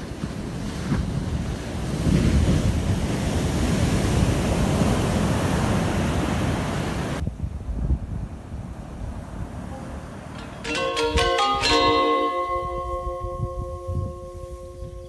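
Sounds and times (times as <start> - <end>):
wave crashing on beach: 0.0 - 7.2
whitewater rushing up shore: 1.3 - 7.2.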